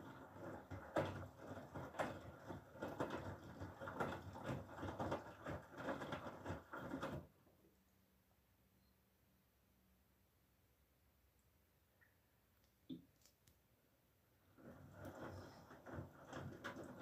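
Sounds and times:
washing machine drum tumbling laundry: 0:00.0 - 0:07.4, 0:14.5 - 0:17.0.

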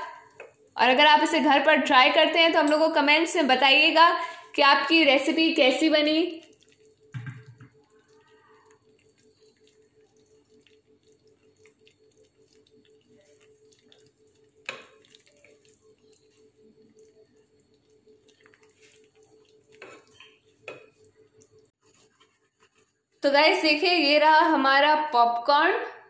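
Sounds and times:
sauce bubbles popping: 0:04.5 - 0:21.8
spatula stirring sauce: 0:06.4 - 0:23.2
knock: 0:07.2 - 0:07.6.

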